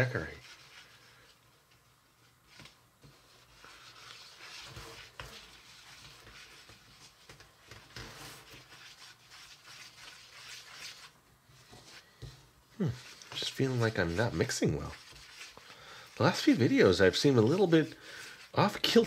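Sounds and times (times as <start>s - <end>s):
spatula scraping powder in plastic bowl: 3.0s - 19.0s.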